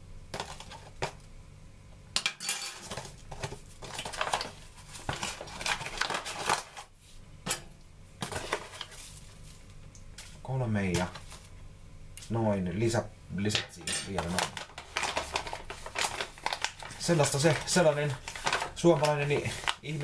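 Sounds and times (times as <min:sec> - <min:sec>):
foil bag crinkling: 0:00.4 - 0:01.1, 0:02.9 - 0:07.0, 0:08.2 - 0:11.6, 0:14.0 - 0:20.0.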